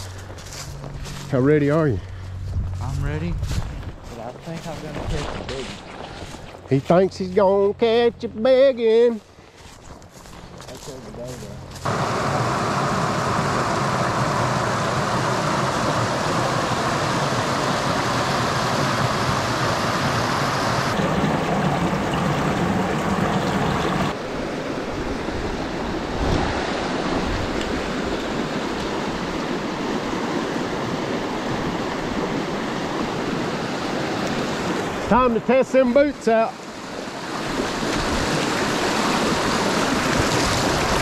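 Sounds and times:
creek water rushing: 11.8 - 41.0.

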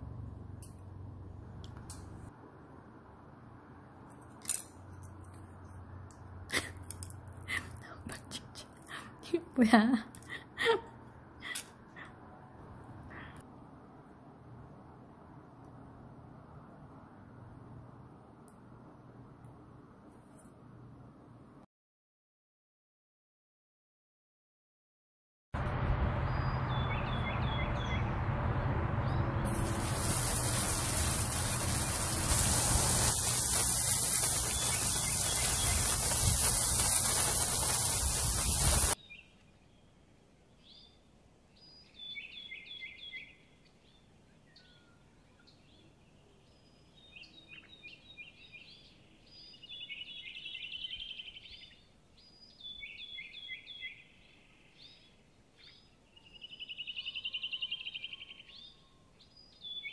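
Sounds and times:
small birds chirping: 26.3 - 28.1, 29.0 - 59.9
water spraying onto metal table: 29.5 - 39.0.

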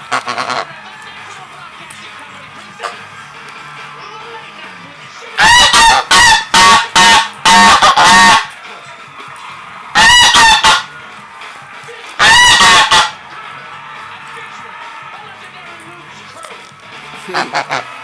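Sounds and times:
goose honking: 0.0 - 0.7, 5.4 - 8.5, 10.0 - 10.9, 12.2 - 13.2, 17.3 - 18.0.

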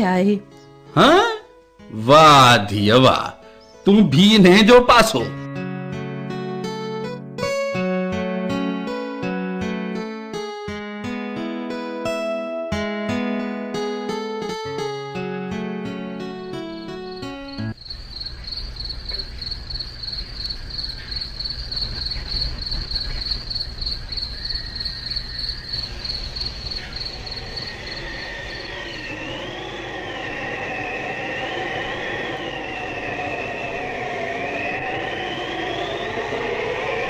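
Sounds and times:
crickets chirping: 16.8 - 37.0
train squealing: 17.6 - 37.0
low rumble: 25.9 - 37.0.

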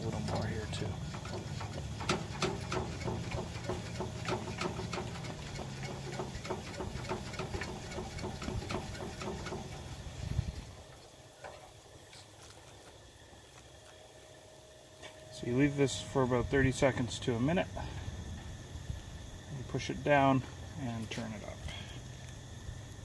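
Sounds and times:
pump plunger clicking: 0.1 - 9.8.

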